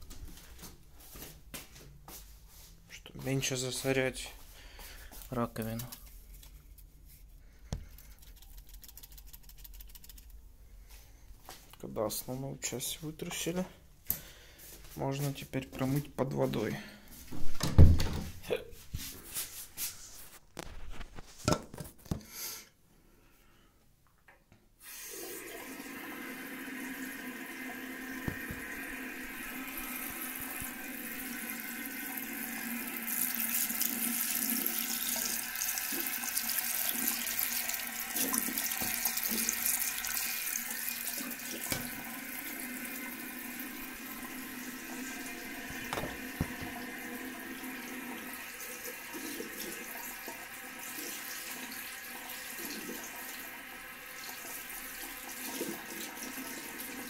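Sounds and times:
tap water running into sink: 0:24.9 - 0:57.0.

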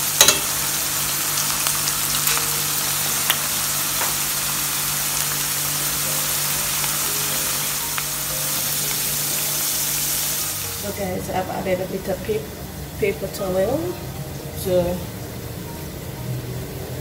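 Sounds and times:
oil sizzling in a pan: 0:00.0 - 0:17.0.

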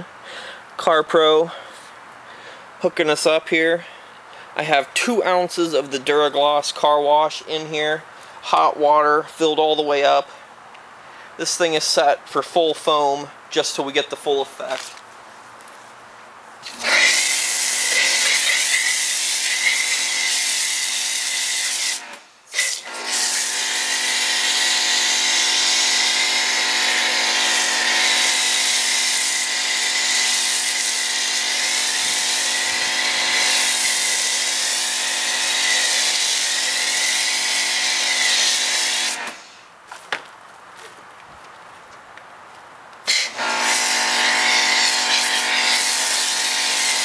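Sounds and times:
foam gun hissing spray: 0:16.6 - 0:39.6, 0:43.1 - 0:47.0.

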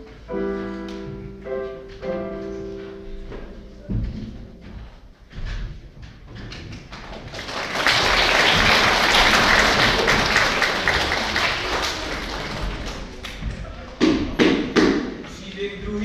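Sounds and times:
audience applauding: 0:06.8 - 0:13.5.

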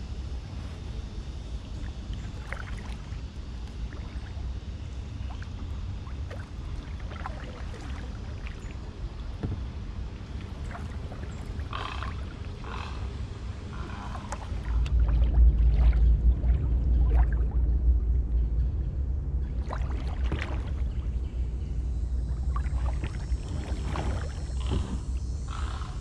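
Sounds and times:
low rumble: 0:00.0 - 0:25.9
kayak paddle strokes in water: 0:01.6 - 0:12.8, 0:13.6 - 0:17.6, 0:19.5 - 0:21.2, 0:22.2 - 0:25.2
water drips and splashes: 0:02.1 - 0:04.4, 0:05.3 - 0:12.6, 0:13.9 - 0:17.7, 0:19.6 - 0:21.0, 0:22.4 - 0:25.0.

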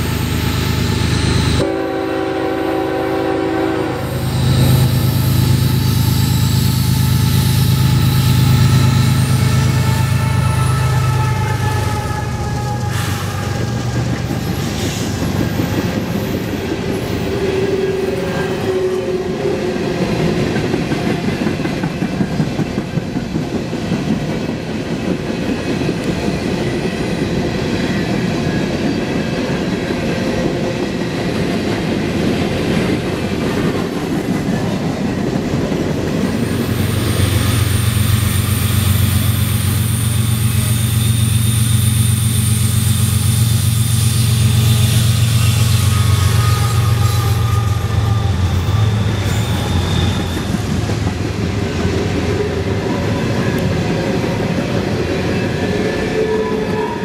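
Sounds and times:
locomotive low drone: 0:00.0 - 0:01.8, 0:03.6 - 0:19.5
train wheels clattering on rails: 0:12.4 - 0:18.3, 0:19.7 - 0:57.0.

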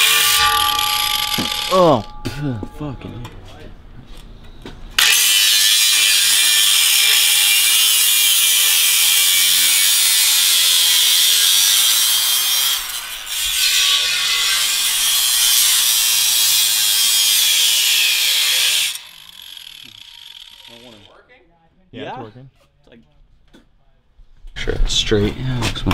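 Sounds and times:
angle grinder cutting steel: 0:00.0 - 0:02.4, 0:05.0 - 0:21.1.

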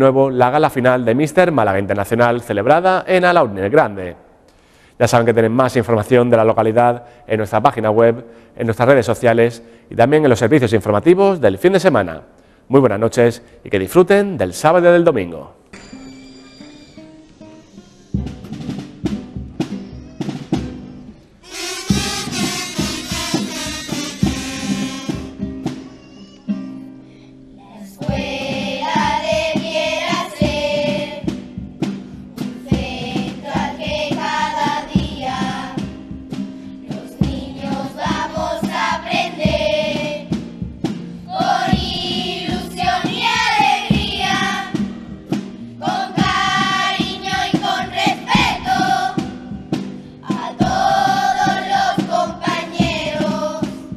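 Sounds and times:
drum beats: 0:15.7 - 0:27.0, 0:27.7 - 0:53.9
children's choir singing: 0:21.4 - 0:26.8, 0:27.6 - 0:31.5, 0:32.4 - 0:36.2, 0:36.8 - 0:40.5, 0:41.2 - 0:53.9.

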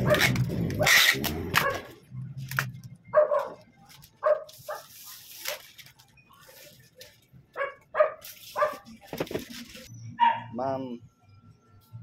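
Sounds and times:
dog barking: 0:01.6 - 0:01.9, 0:03.1 - 0:03.6, 0:04.2 - 0:04.9, 0:07.6 - 0:08.9
plastic bag rustling: 0:03.8 - 0:07.3.

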